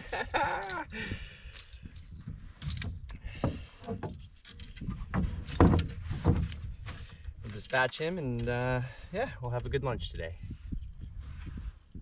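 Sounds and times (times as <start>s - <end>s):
fishing gear clattering in canoe: 0.0s - 9.6s.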